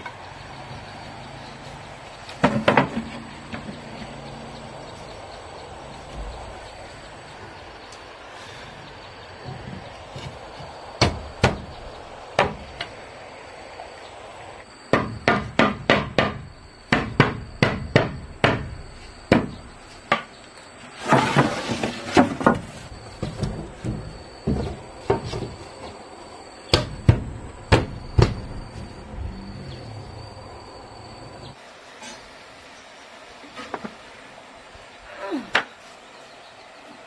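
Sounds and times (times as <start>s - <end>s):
hammer striking nails into wood: 14.9s - 18.7s
rustling scrape: 20.9s - 23.0s.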